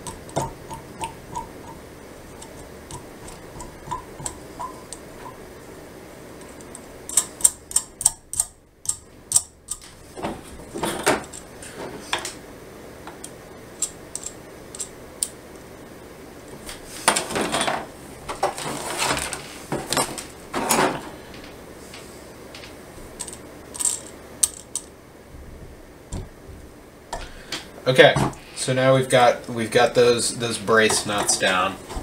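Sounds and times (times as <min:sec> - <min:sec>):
metal nuts and washers clicking: 0:13.1 - 0:15.3, 0:22.6 - 0:24.9.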